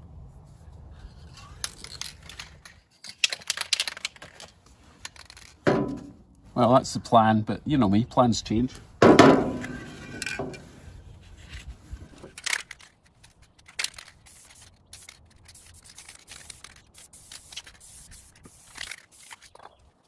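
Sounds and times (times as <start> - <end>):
spray can hissing: 14.2 - 19.5.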